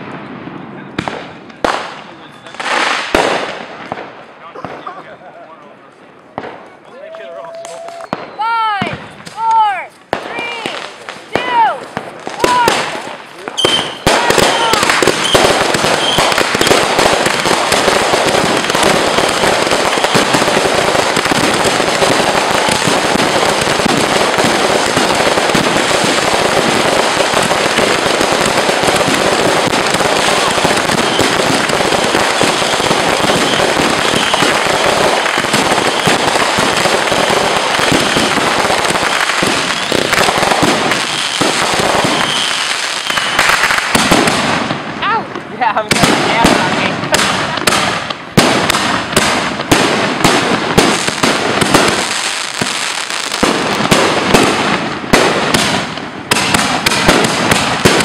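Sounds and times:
fireworks bangs and crackling: 0.0s - 58.0s.

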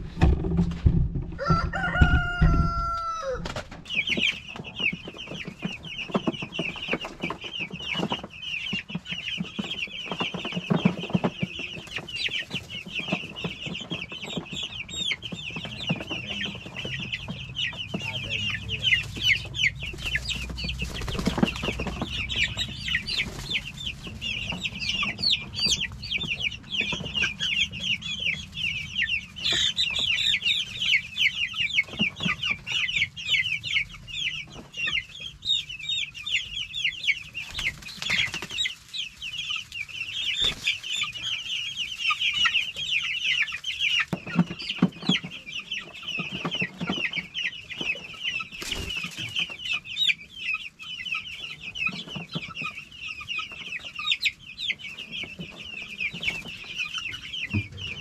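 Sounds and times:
knocks: 0.0s - 2.8s
chicks peeping: 0.0s - 58.0s.

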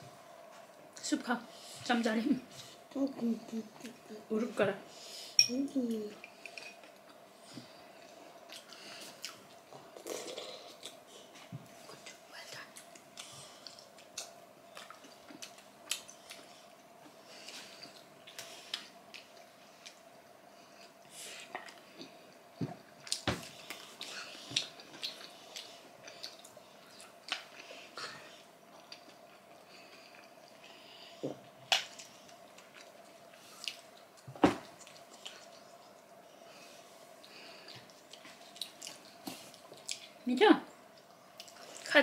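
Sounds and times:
faint hum: 0.0s - 42.0s
chewing and wet mouth noises: 8.0s - 36.5s, 37.1s - 40.2s, 40.8s - 41.9s
wet chewing: 37.2s - 40.2s.

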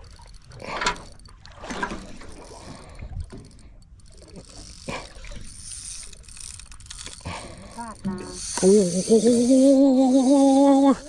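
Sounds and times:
water slapping against boat hull: 1.4s - 2.4s.

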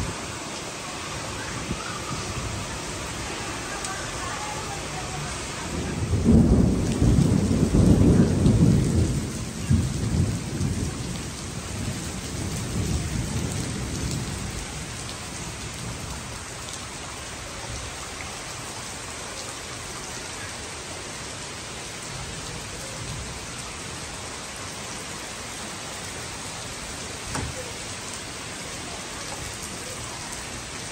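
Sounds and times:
heavy rain on leaves and pavement: 0.0s - 30.9s
rolling thunder: 5.7s - 14.9s.

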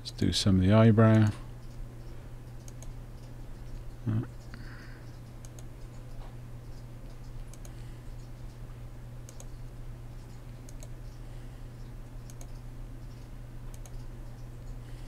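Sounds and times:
steady low hum: 0.0s - 15.0s.

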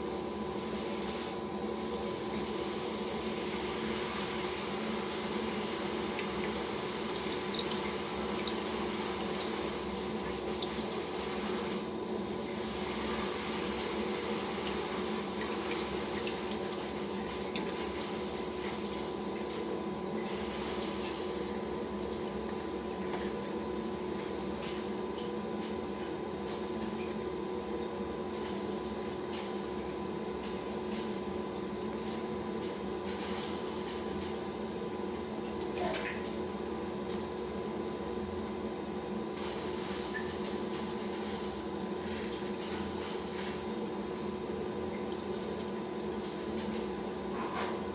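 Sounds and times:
aquarium pump humming: 0.0s - 47.9s
water trickling and splashing: 6.0s - 37.7s, 39.0s - 47.9s.

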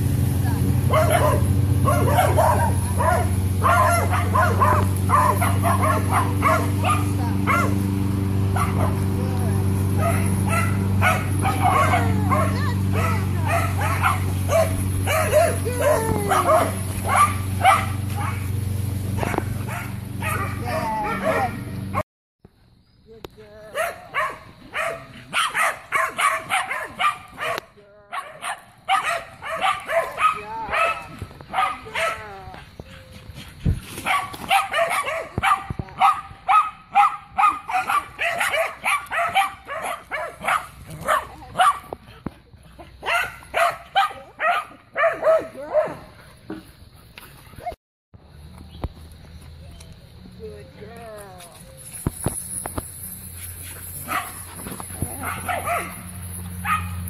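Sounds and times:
dogs barking: 0.8s - 9.2s, 9.8s - 22.0s, 23.7s - 33.1s, 34.0s - 46.2s, 53.9s - 57.0s.

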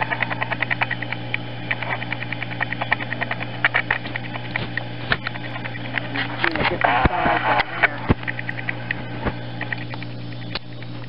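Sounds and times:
reed coils rustling and clicking: 0.0s - 11.0s
steady low hum: 0.0s - 11.0s.

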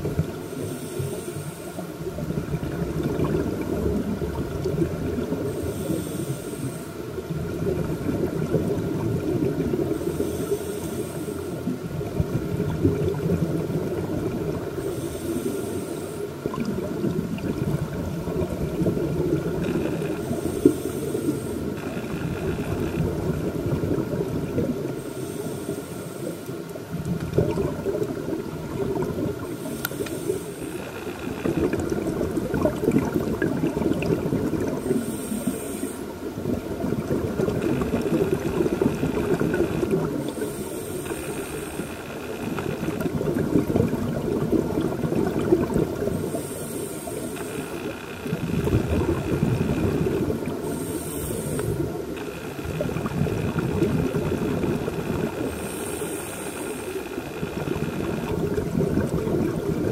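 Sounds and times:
exhaust bubbles rushing underwater: 0.0s - 11.0s, 11.6s - 15.8s, 16.4s - 25.0s, 26.7s - 30.5s, 31.2s - 47.6s, 48.2s - 59.9s
regulator inhale hiss: 0.2s - 2.1s, 5.3s - 7.8s, 9.8s - 12.1s, 14.6s - 16.7s, 19.6s - 24.1s, 24.9s - 26.9s, 29.4s - 31.8s, 34.6s - 36.4s, 37.7s - 43.1s, 45.4s - 58.3s.

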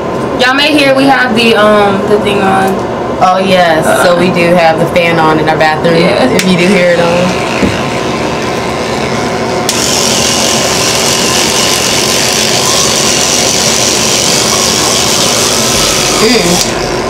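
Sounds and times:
exhaust fan whirring: 0.0s - 17.0s
electric toothbrushes buzzing: 5.9s - 17.0s.

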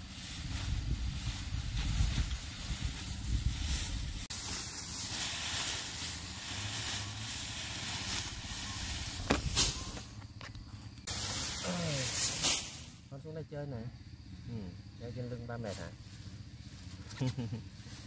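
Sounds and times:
wind rumbling on microphone: 0.0s - 4.3s
steady outdoor hiss: 0.0s - 18.0s.

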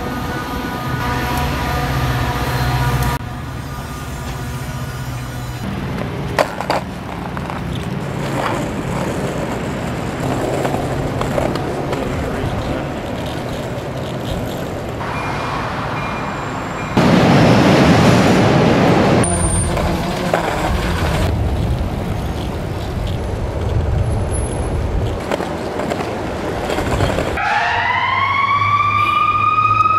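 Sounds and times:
skateboard wheels rolling on pavement: 0.0s - 15.2s, 16.9s - 27.4s.

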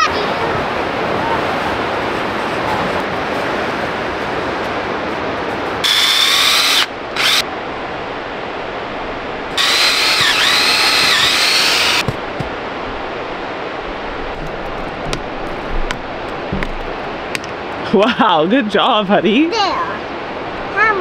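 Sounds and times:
power drill whining into wood: 5.8s - 7.4s, 9.6s - 12.0s.

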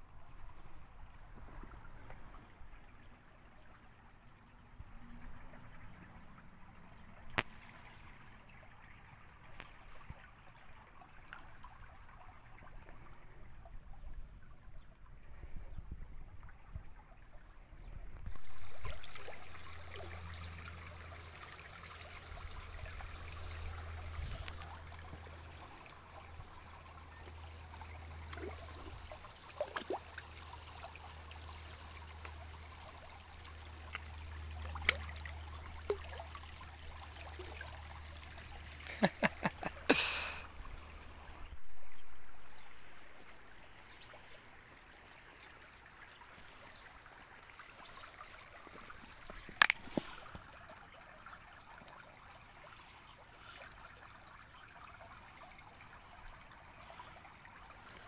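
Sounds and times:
stream water trickling: 0.0s - 58.0s
eels thrashing and splashing: 33.8s - 36.3s.

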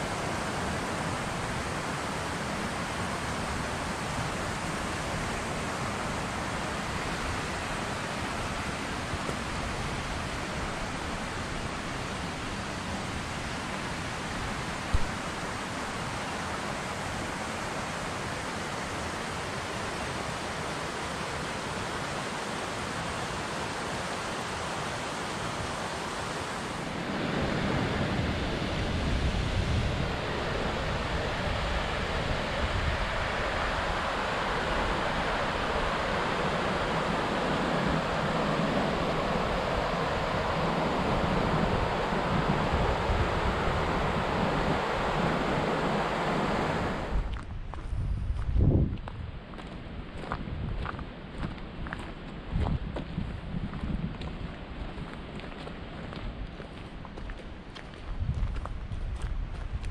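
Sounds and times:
creek rushing over rocks: 0.0s - 47.3s.

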